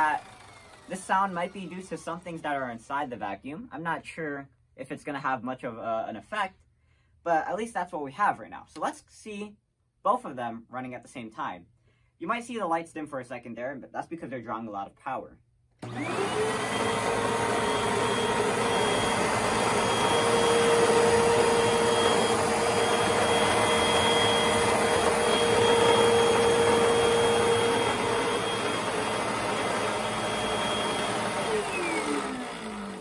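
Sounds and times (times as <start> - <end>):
motor spinning down: 0.0 - 2.4, 15.8 - 33.0
vacuum cleaners whining: 0.0 - 2.4, 15.8 - 33.0.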